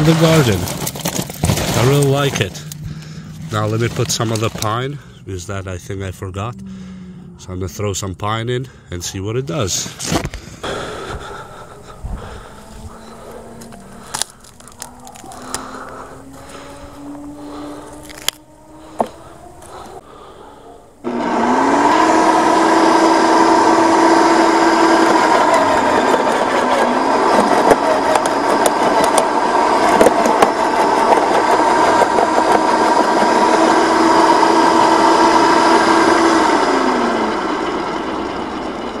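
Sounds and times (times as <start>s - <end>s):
branches being chipped: 0.0s - 4.8s, 11.6s - 20.0s
wood chipper motor whining: 0.0s - 7.6s, 9.9s - 39.0s
wood cracking and knocking: 0.4s - 2.8s.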